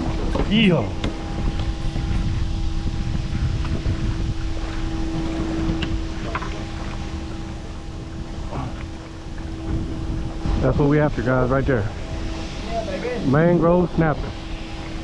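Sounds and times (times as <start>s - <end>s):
steady boat hum: 0.0s - 15.0s
wind noise on microphone: 0.0s - 15.0s.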